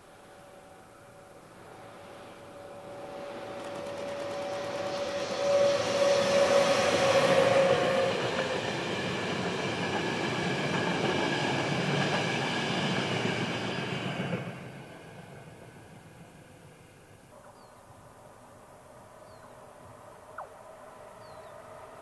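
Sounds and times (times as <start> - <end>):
train whine: 0.0 - 22.0
train wheels rumbling on rails: 1.6 - 16.9.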